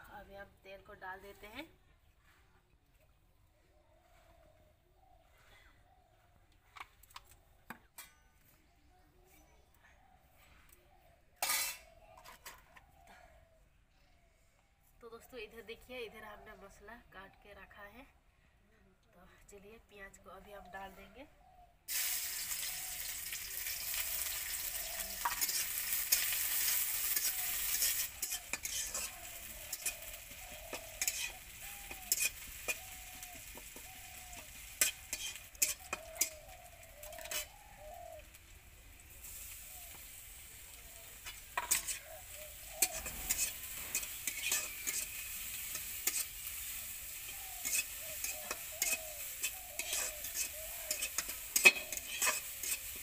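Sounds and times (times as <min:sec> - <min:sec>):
metal spatula scraping pan: 0:11.4 - 0:12.6, 0:23.6 - 0:37.6, 0:41.2 - 0:53.0
onion sizzling in hot oil: 0:21.9 - 0:53.0.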